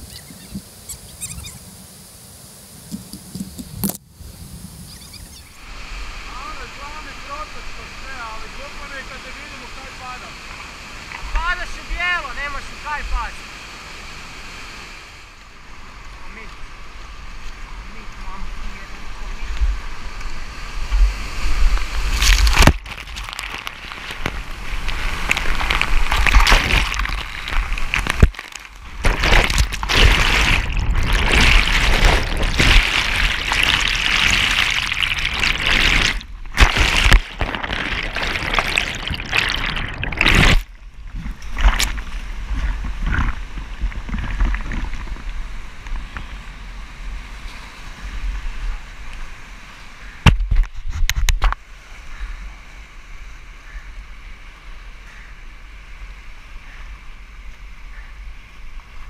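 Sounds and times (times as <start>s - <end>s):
whitewater rushing and splashing: 5.6s - 50.2s.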